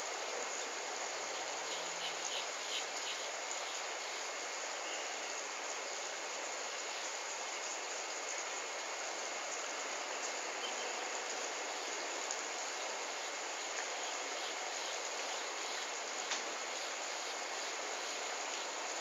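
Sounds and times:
outdoor background hiss: 0:00.0 - 0:19.0
faint ticks: 0:13.6 - 0:19.0.

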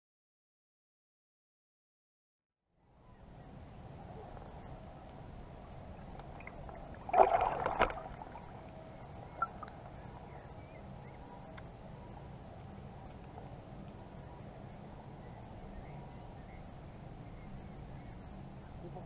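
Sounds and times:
faint clicks: 0:06.0 - 0:06.6, 0:09.4 - 0:10.0, 0:11.4 - 0:11.7
small waves lapping: 0:06.0 - 0:10.3.

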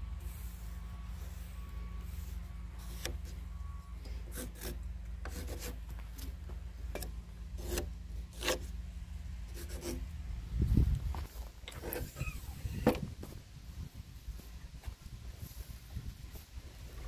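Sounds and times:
pencil scratching on timber: 0:04.3 - 0:06.3, 0:07.0 - 0:08.7, 0:09.5 - 0:10.0
steady low rumble: 0:04.8 - 0:17.0.

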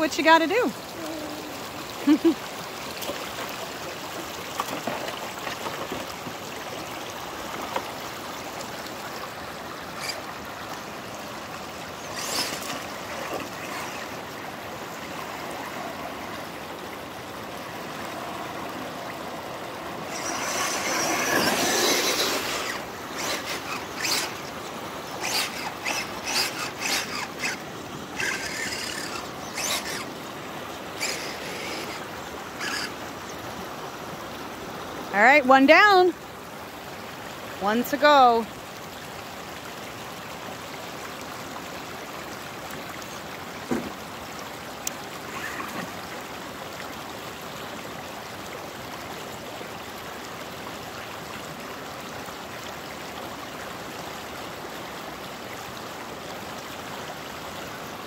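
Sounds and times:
water splashing: 0:00.0 - 0:33.2
creek water over stones: 0:00.0 - 0:58.0.

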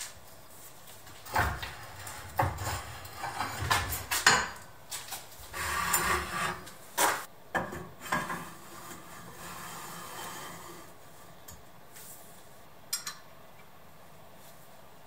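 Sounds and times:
metal scraping slide: 0:01.2 - 0:04.2, 0:05.5 - 0:07.3, 0:08.4 - 0:11.0.

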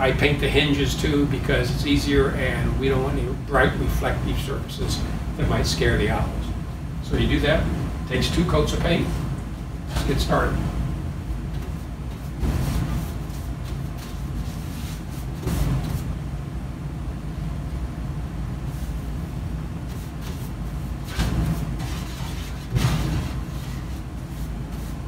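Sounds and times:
paintbrush scraping: 0:11.6 - 0:16.1, 0:19.8 - 0:25.0.

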